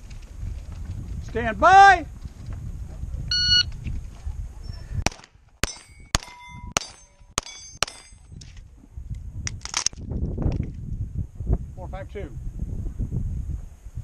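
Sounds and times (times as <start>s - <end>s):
pistol shots: 5.0s - 8.2s
steel target clanging: 5.2s - 8.4s
magazine metallic clicks: 9.5s - 10.6s.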